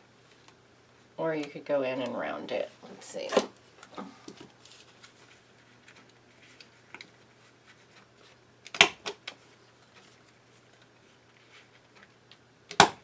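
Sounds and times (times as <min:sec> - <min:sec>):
paper handling: 0:04.4 - 0:08.4.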